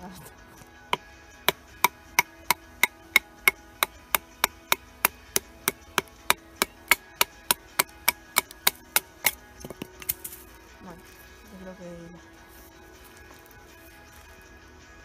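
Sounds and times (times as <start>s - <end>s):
wooden baton striking knife spine: 1.0s - 10.4s.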